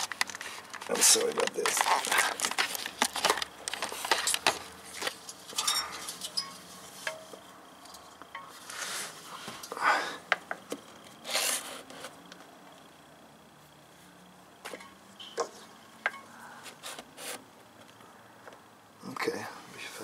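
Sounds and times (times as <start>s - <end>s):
rustles and scrapes: 0.0s - 7.3s, 7.9s - 9.7s, 11.0s - 12.2s.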